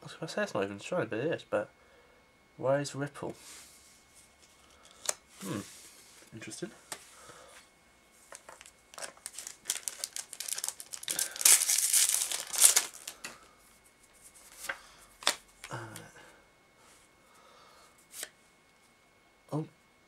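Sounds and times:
wrapper tearing and crinkling: 8.3 - 13.2.

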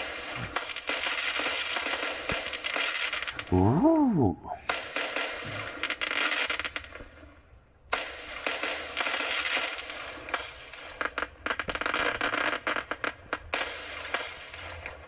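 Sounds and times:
crackling firework stars popping: 0.0 - 15.0.

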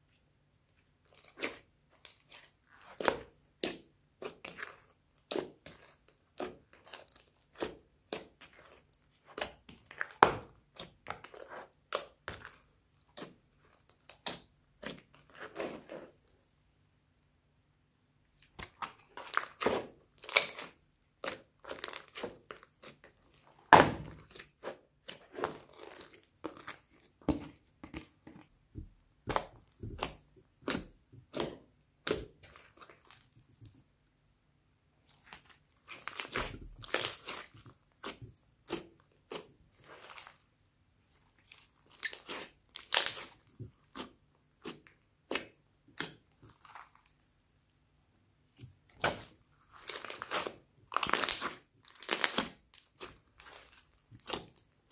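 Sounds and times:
slime squishing: 0.7 - 16.6, 18.2 - 33.8, 35.0 - 47.4, 48.5 - 54.9.

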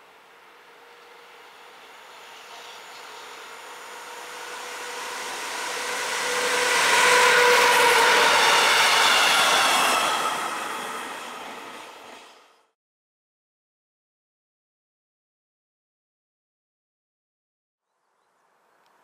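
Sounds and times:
locomotive whine: 0.0 - 12.7
train wheels on rail: 0.6 - 12.7.

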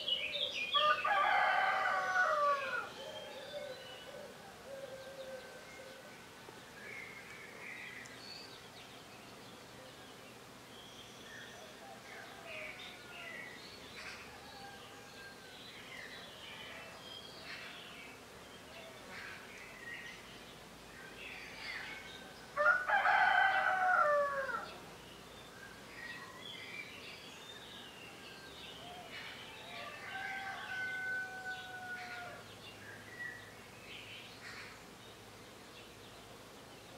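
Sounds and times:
songbirds chirping: 0.0 - 36.9
steady outdoor hiss: 0.0 - 36.9
rooster crowing: 0.8 - 3.7, 22.6 - 24.7, 29.6 - 32.4.

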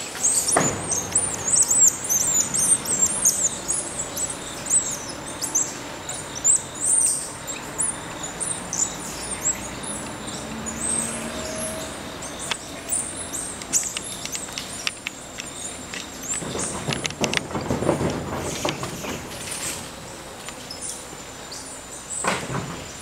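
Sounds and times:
birds chirping: 0.0 - 23.0
sharp clicks: 13.5 - 18.9.

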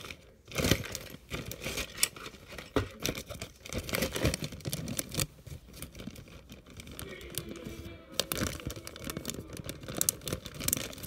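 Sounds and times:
rustling and crinkling of bag: 0.0 - 11.0.

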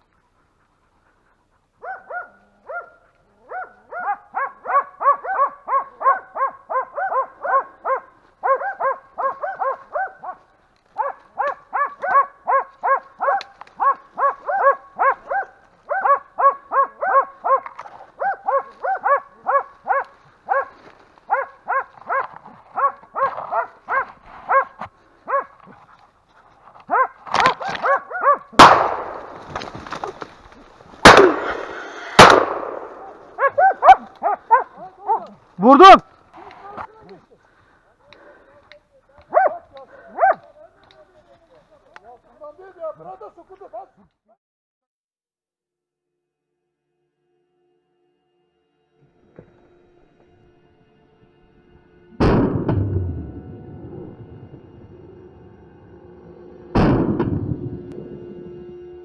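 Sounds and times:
dogs barking rhythmically: 0.4 - 25.8, 26.8 - 30.1, 31.0 - 36.0, 39.2 - 40.5
gunshot with ringing echo: 28.6 - 29.6, 31.0 - 33.5, 52.2 - 53.3.

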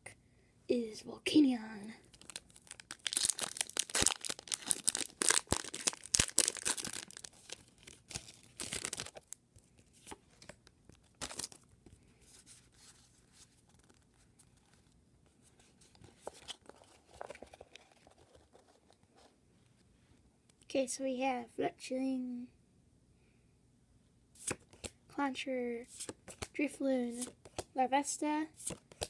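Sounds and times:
foil wrapper tearing and crinkling: 2.1 - 9.4, 11.0 - 11.6
cards clicking and rustling: 10.0 - 11.6, 16.0 - 18.4, 25.9 - 26.5, 27.1 - 27.7, 28.6 - 29.0.

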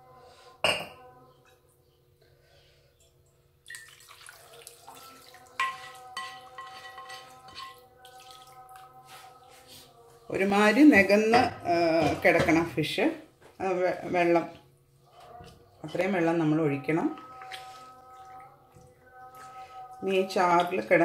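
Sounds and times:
thick gravy pouring and sloshing: 3.7 - 5.6
spatula scraping a pan: 5.6 - 7.8.

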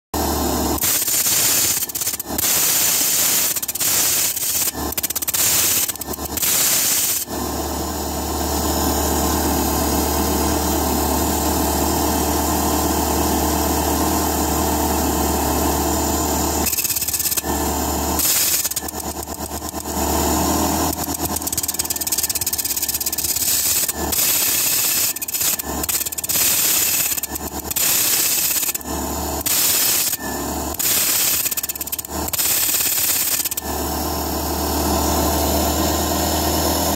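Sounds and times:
stone grinding on spinning metal lap: 20.6 - 28.8.

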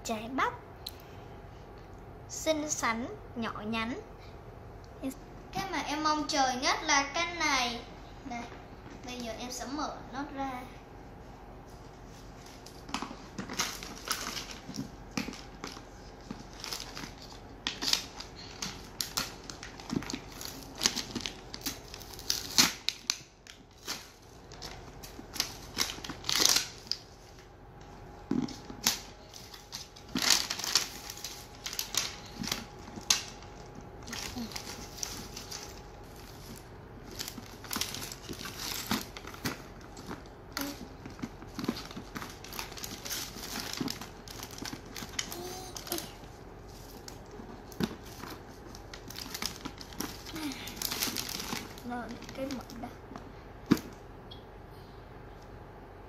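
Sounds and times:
paper crinkling and tearing: 12.2 - 27.4, 28.3 - 52.9.

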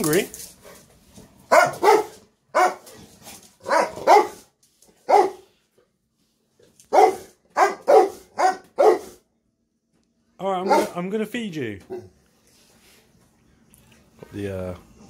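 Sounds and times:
dog barking: 1.5 - 2.9, 3.6 - 4.4, 5.0 - 5.5, 6.9 - 9.2, 10.6 - 11.0.

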